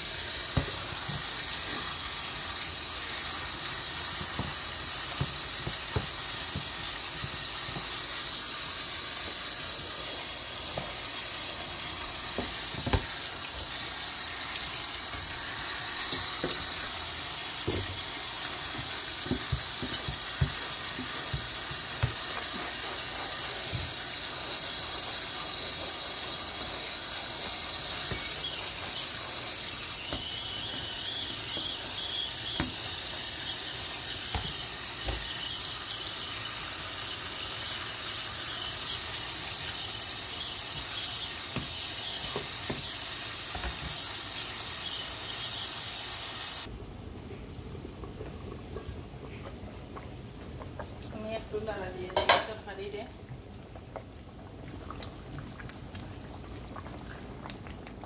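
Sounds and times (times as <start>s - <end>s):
tap running into steel sink: 4.0s - 8.0s, 12.3s - 13.2s, 17.6s - 22.5s, 32.6s - 32.8s, 34.3s - 35.4s
dishes being scrubbed: 17.5s - 23.9s.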